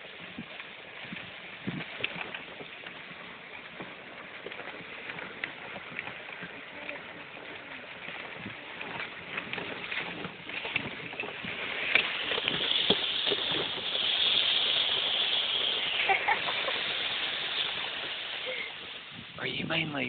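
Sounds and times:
golf cart tyres hissing: 0.0s - 20.0s.

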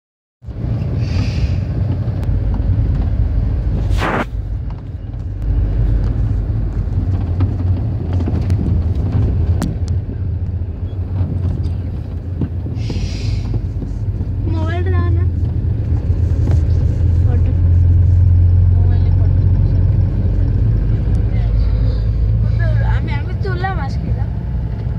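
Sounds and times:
vehicle rumble from inside: 0.4s - 24.9s
brief hiss: 3.9s - 4.4s.

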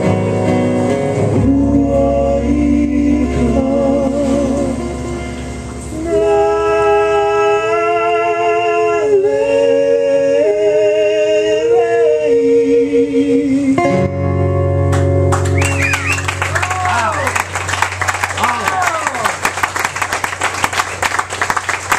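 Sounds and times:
acoustic guitar: 0.0s - 21.9s
men singing with vibrato: 1.3s - 14.1s.

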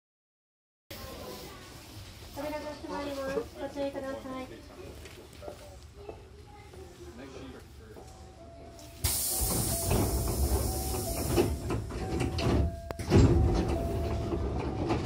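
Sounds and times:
train doors hissing air: 9.0s - 15.0s
train doors slamming open: 9.0s - 15.0s.

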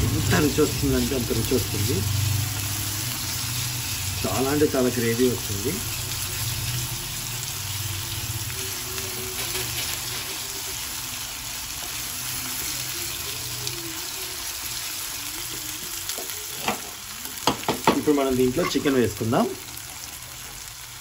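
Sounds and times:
food sizzling in oil: 0.0s - 21.0s.

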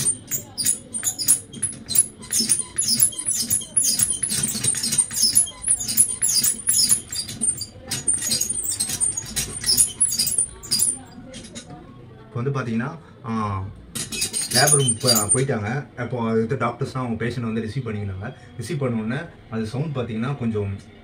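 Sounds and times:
clicking and rattling of small objects: 0.0s - 11.7s, 14.0s - 15.4s.

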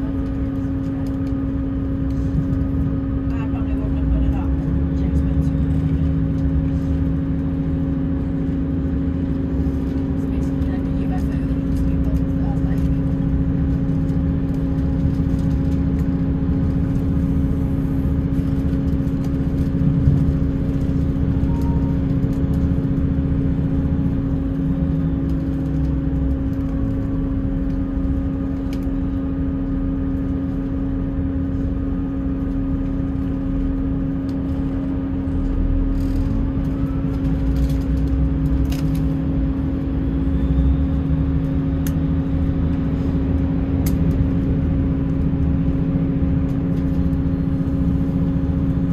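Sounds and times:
diesel engine droning: 0.0s - 48.9s
train wheels rumbling on rails: 0.0s - 48.9s
faint clicks and squeals: 21.4s - 22.6s.

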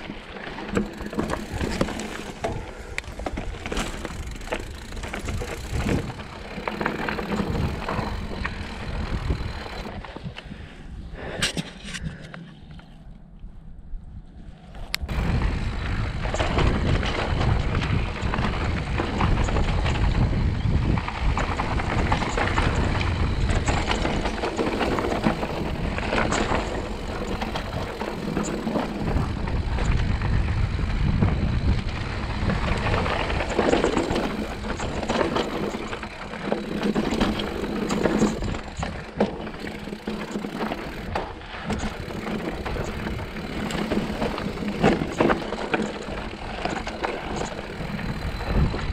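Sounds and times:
tyres crunching over rock: 0.0s - 9.9s
bike rattling and clicking: 0.0s - 10.6s, 15.0s - 48.9s
wind rumble on microphone: 0.0s - 48.9s.

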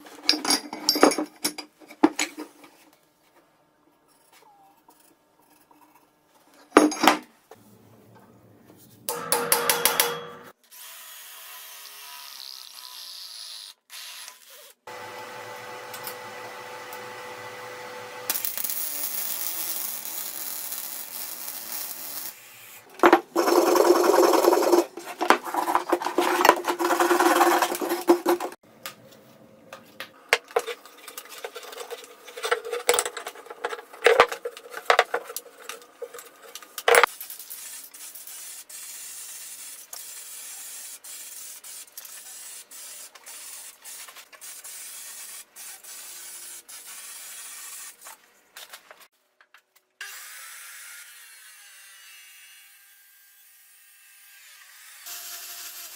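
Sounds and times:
arc welding crackle and hiss: 18.3s - 22.6s.

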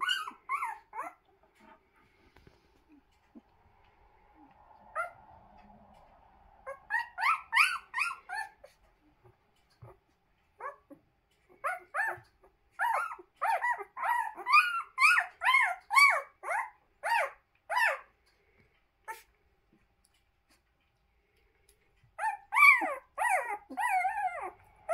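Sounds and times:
puppies squeaking and whimpering: 0.0s - 1.8s, 6.7s - 8.8s, 10.6s - 18.0s, 22.2s - 24.9s.

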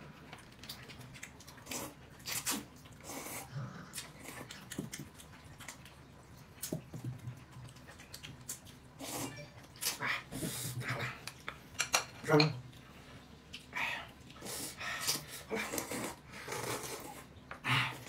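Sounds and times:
wet chewing and smacking: 0.1s - 10.3s.

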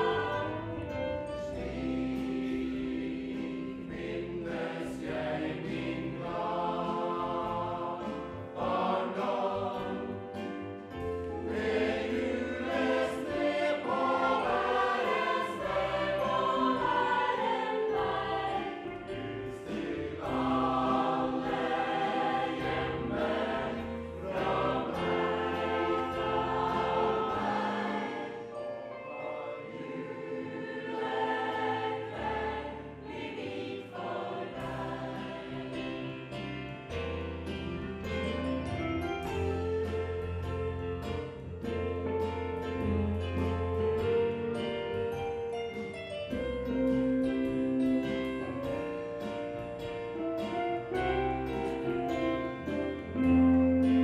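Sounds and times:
choir singing in harmony: 0.0s - 37.8s, 46.7s - 54.0s.

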